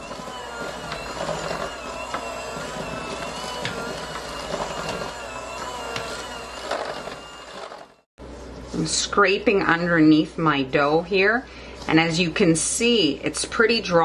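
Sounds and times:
electric hand mixer running: 0.0s - 8.1s.

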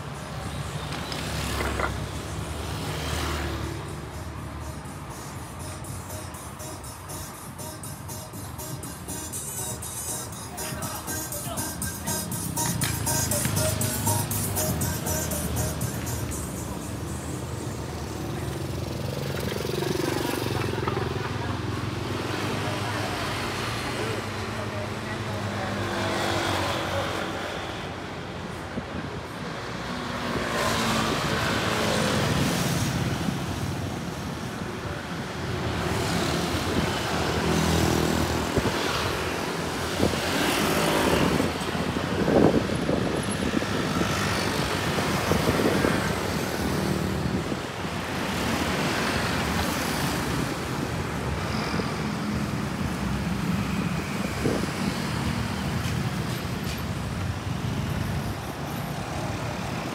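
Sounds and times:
steady roadway hum: 0.0s - 59.9s
vehicles passing close by: 0.0s - 59.9s.

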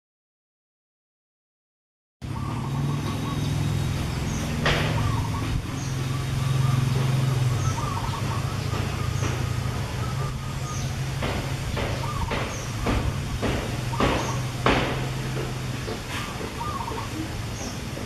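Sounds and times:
engine humming: 2.2s - 18.0s
light rustling knocks: 8.2s - 18.0s.

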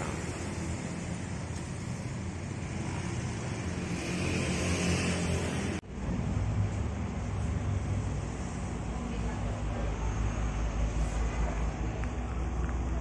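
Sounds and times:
street traffic: 0.0s - 13.0s
motor scooter engine passing: 2.6s - 5.8s.

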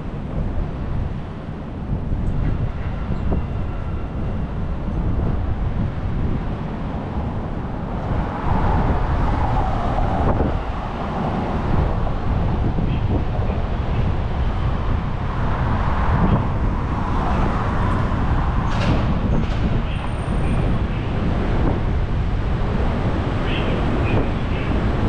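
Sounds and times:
city traffic: 0.0s - 25.0s
wind rumbling on microphone: 0.0s - 25.0s
vehicle passing close by: 7.0s - 23.4s.

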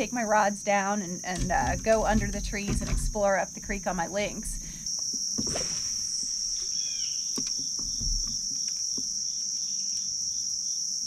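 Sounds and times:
insect chorus drone: 0.0s - 11.0s
soft knocks: 1.4s - 4.8s, 7.4s - 9.1s
falling bird chirp: 5.4s - 10.0s.

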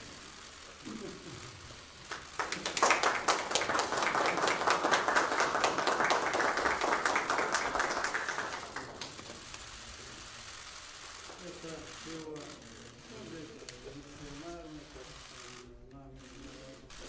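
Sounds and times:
people applauding: 1.8s - 9.6s.

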